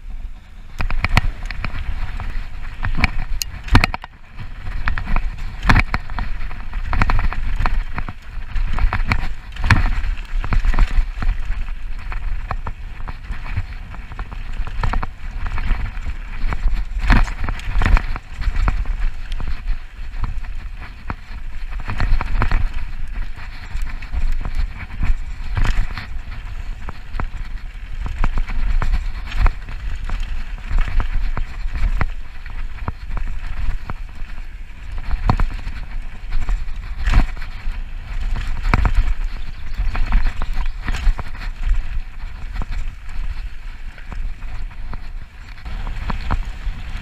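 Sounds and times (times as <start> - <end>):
bike knocking and rattling: 0.0 - 47.0
bike tyres rumbling on dirt: 0.0 - 47.0.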